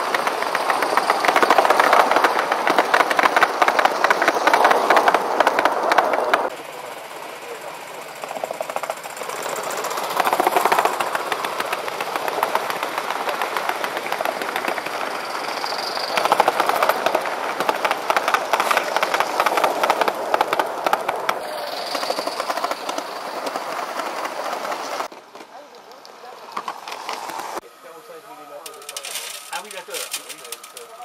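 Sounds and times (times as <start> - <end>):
model train wheels clattering: 0.0 - 27.4, 28.6 - 31.0.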